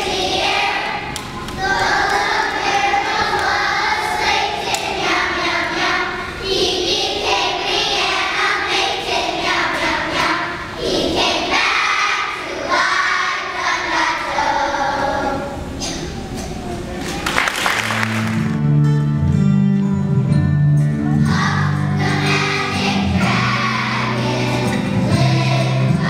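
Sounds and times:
children's choir singing: 0.0s - 16.0s, 21.2s - 26.0s.

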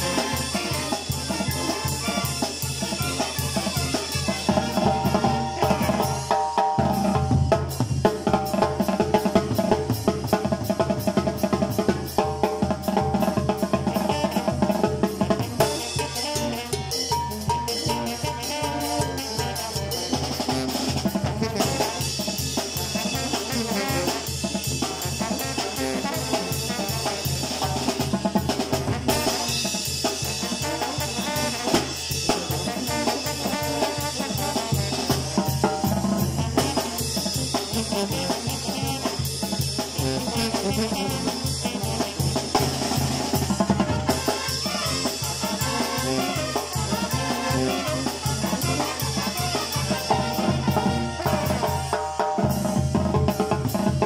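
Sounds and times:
trombones and trumpets: 0.0s - 7.8s, 8.5s - 53.8s
drums keeping a steady beat: 0.0s - 54.0s.

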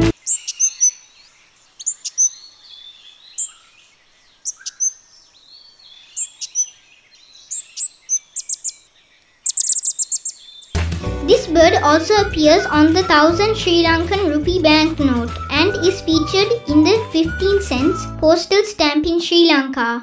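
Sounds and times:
parrot chirping: 9.4s - 10.4s.

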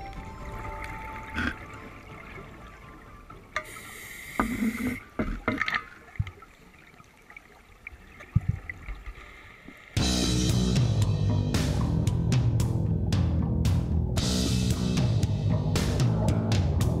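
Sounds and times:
background music: 0.0s - 5.0s, 10.0s - 17.0s
regulator breathing and bubbles: 3.5s - 6.9s.

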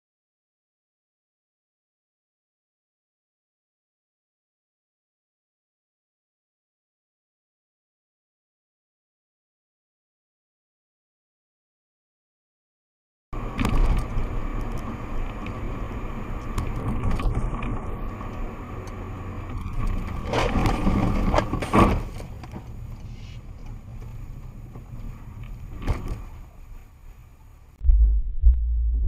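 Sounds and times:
car engine and road rumble: 13.4s - 29.0s.

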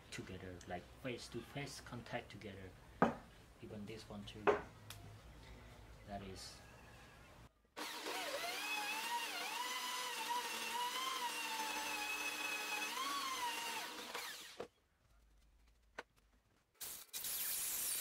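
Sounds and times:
drill press whining: 7.8s - 14.7s
hiss of metal cutting: 16.8s - 18.0s.

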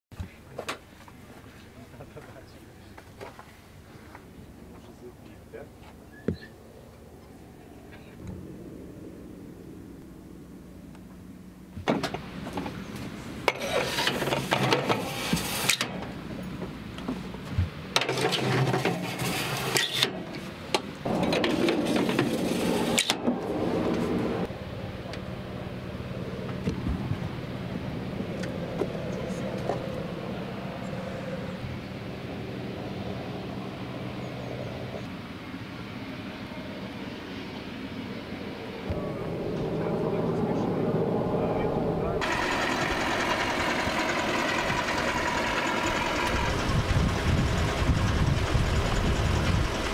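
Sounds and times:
faint steady hum: 0.2s - 18.0s
engine running: 0.2s - 49.9s
rocket scraping into launcher tube: 13.5s - 15.9s, 18.1s - 20.2s, 21.1s - 24.5s.

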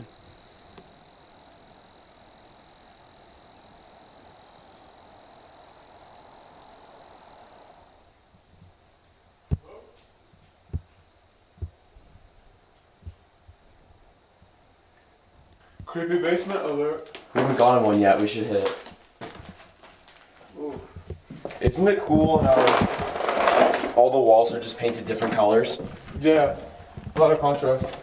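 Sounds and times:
crickets trilling: 0.0s - 28.0s
short dull thumps: 9.5s - 9.8s.

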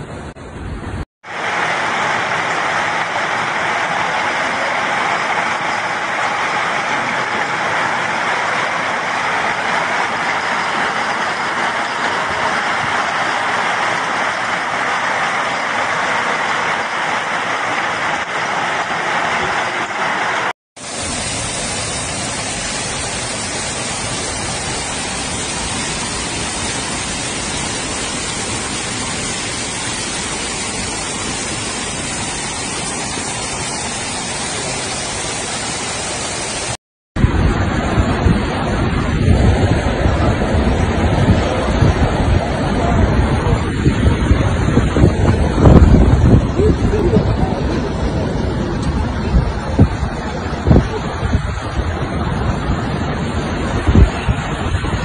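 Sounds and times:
floodwater rushing down street: 0.0s - 55.0s
hail hissing on street: 1.2s - 36.8s.

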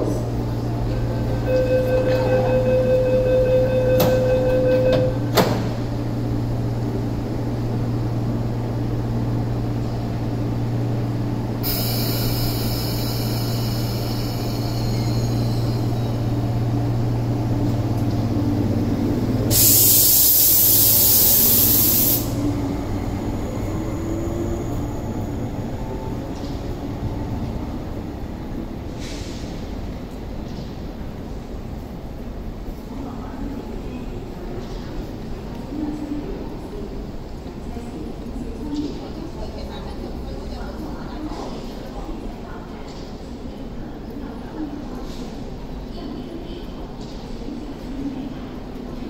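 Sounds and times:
train motor pitch rising: 0.6s - 5.4s
train doors shutting knock: 0.8s - 6.0s
door-closing warning tone: 0.9s - 5.9s
air hiss: 11.6s - 15.2s, 19.5s - 22.4s.

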